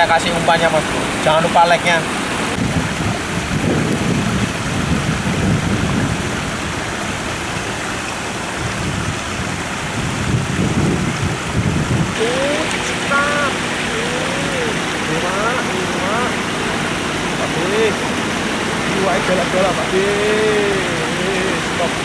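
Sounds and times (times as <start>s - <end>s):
low rumbles: 0.0s - 22.0s
water rushing from spillway: 0.0s - 22.0s.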